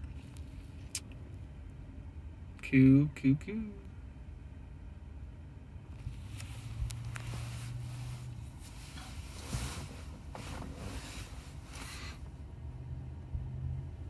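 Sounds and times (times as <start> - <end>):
car cabin hum: 0.0 - 13.4
rustling noise: 6.0 - 12.3.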